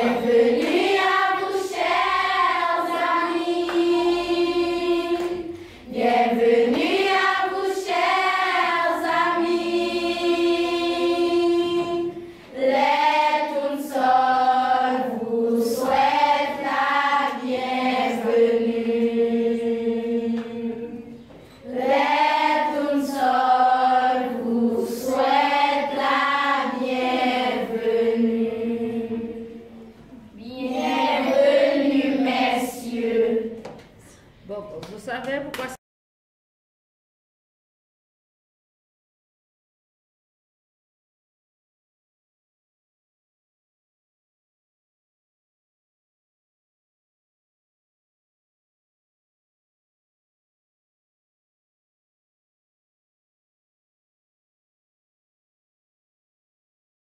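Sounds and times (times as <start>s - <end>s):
girls singing together: 0.0s - 34.1s.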